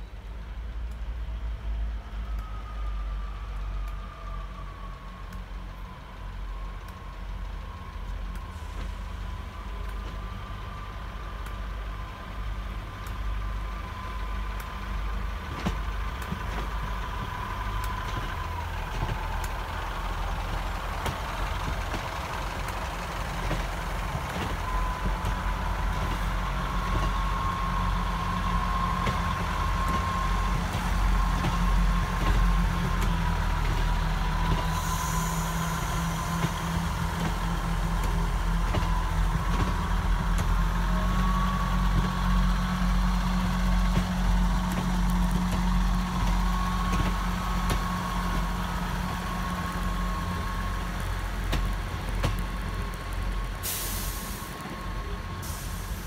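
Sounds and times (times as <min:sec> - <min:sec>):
diesel train engine rumble: 0:00.0 - 0:56.0
train whine: 0:00.0 - 0:56.0.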